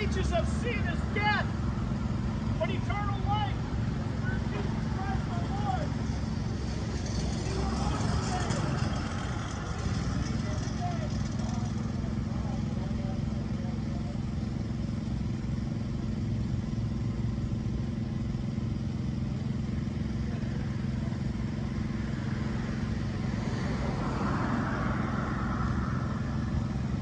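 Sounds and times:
car passing: 0.0s - 13.1s, 20.2s - 27.0s
traffic engine hum: 0.0s - 27.0s.

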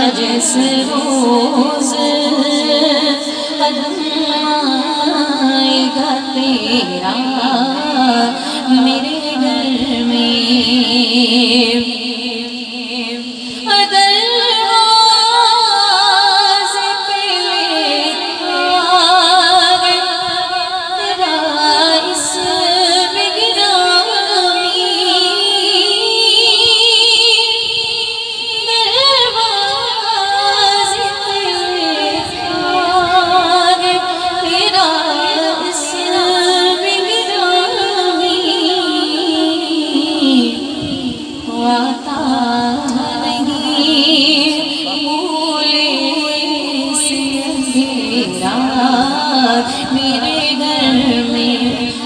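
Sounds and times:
girl singing with echo: 0.0s - 52.0s.

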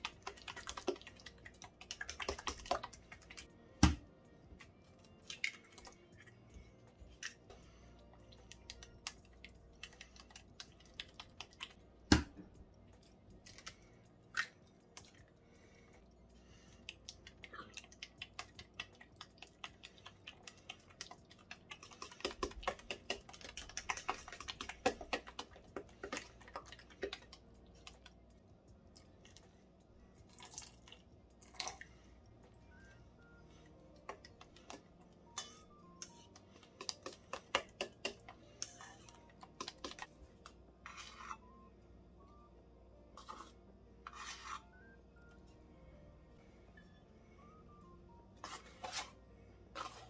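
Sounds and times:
metal utensil stirring batter in bowl: 0.0s - 3.5s, 18.0s - 28.1s, 34.1s - 41.4s, 43.2s - 44.7s, 48.4s - 50.0s.

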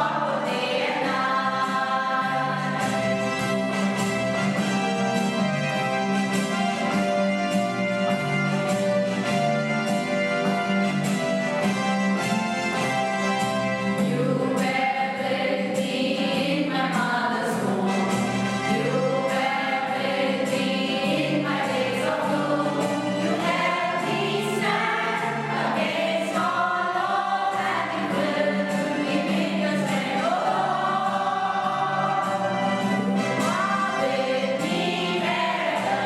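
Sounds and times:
group singing in unison: 0.0s - 3.8s, 14.0s - 36.0s
keyboard music with steady beat: 0.0s - 14.2s, 22.1s - 36.0s.

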